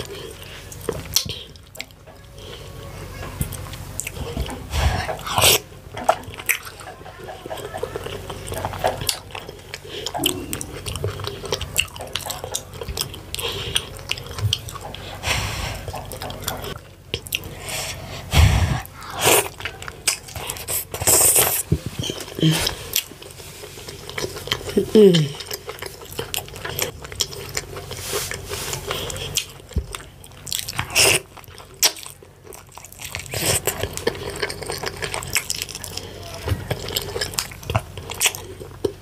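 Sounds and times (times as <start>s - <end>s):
mouth chewing and smacking: 0.0s - 2.7s, 3.4s - 39.0s.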